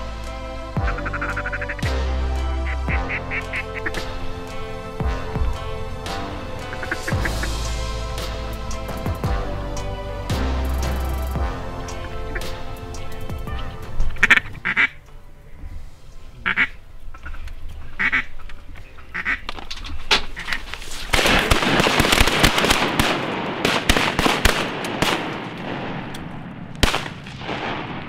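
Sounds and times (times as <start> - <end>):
ducks quacking: 0.8 - 7.6, 11.0 - 19.5.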